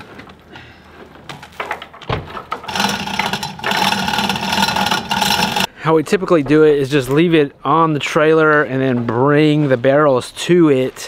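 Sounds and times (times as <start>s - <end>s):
hoist chain rattling: 2.7s - 5.7s.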